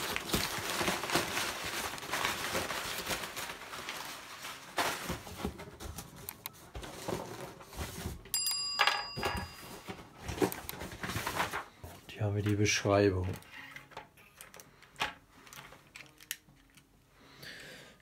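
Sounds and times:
paper and cardboard box rustling: 0.0s - 8.3s, 9.4s - 13.4s
bright bell chime: 8.3s - 9.9s.

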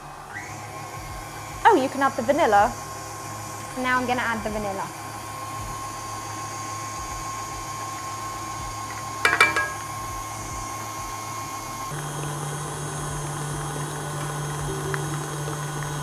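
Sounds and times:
stand mixer running: 0.0s - 16.0s.

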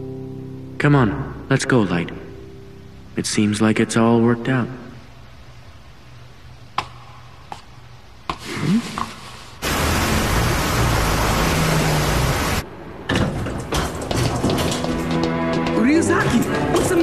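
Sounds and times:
faint hum: 0.0s - 13.1s
heavy rain hissing: 8.4s - 12.8s.

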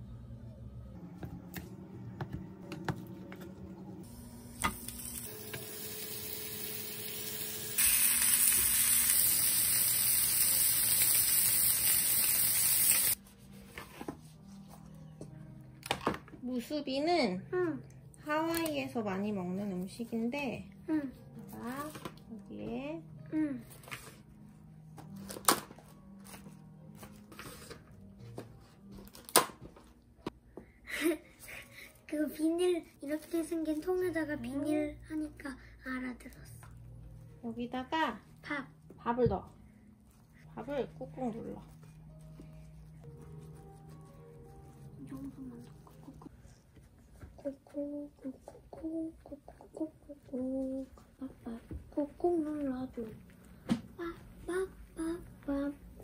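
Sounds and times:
quiet background music: 0.0s - 56.0s
meat sizzling in a pan: 4.4s - 13.2s.

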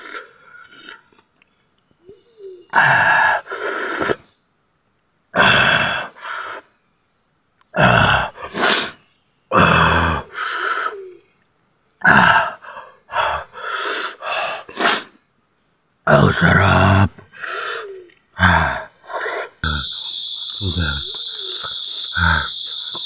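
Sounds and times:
man grunting and groaning: 5.4s - 6.1s, 7.8s - 8.6s, 9.5s - 10.3s, 12.0s - 13.6s, 16.1s - 17.3s, 18.4s - 19.9s.

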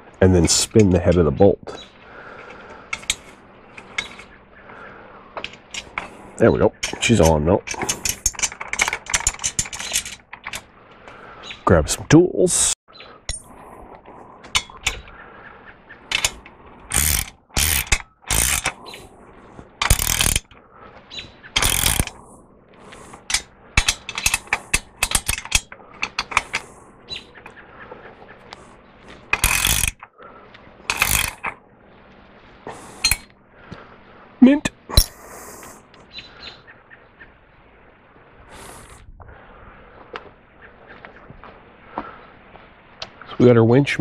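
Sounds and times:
ratchet wrench clicking: 16.1s - 18.9s, 19.8s - 20.5s, 21.6s - 22.2s, 23.2s - 26.7s, 29.3s - 30.0s, 30.9s - 31.6s.

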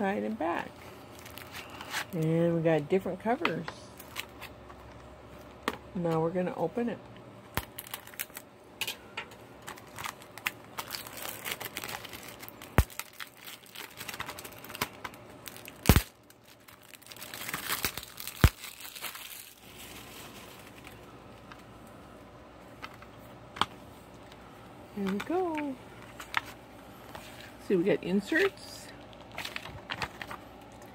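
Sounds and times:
shrink-wrap crinkling and tearing: 0.4s - 2.2s, 4.0s - 5.6s, 7.5s - 8.5s, 9.6s - 21.6s, 28.3s - 30.9s.

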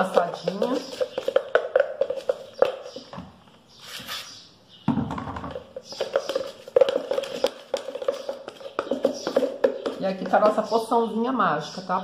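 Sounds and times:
spoon tapping plastic pot: 0.0s - 3.1s, 5.5s - 10.8s
spoon stirring thick paste: 0.0s - 3.2s, 5.6s - 11.9s.

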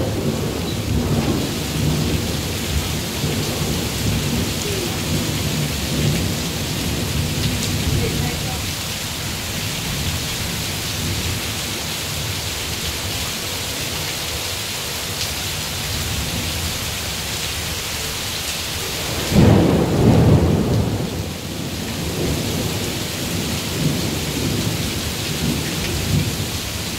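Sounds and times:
thunder clap and rumble: 0.0s - 11.8s, 18.9s - 26.9s
heavy rain hissing: 0.0s - 26.9s.

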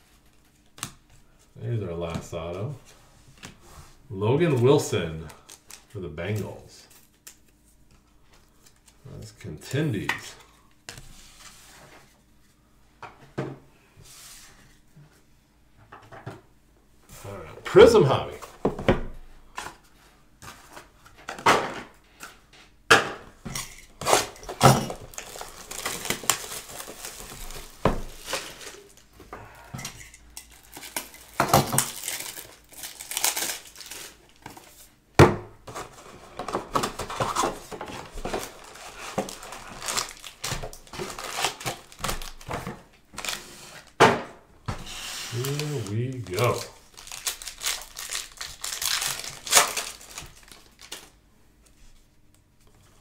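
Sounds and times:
wrapping crinkling and tearing: 4.5s - 7.8s, 24.0s - 29.1s, 30.4s - 34.9s, 36.8s - 42.5s, 43.1s - 44.0s, 45.3s - 51.2s.

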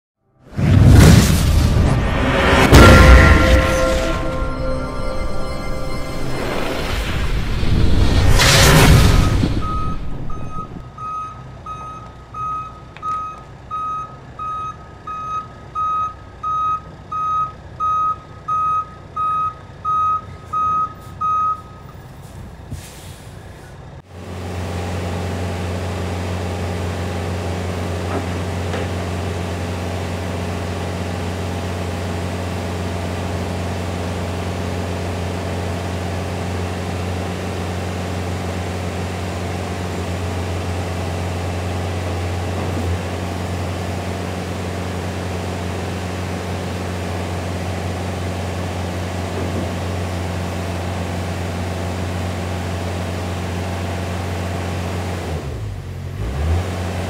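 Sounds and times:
truck reversing alarm beeping: 8.7s - 22.0s.

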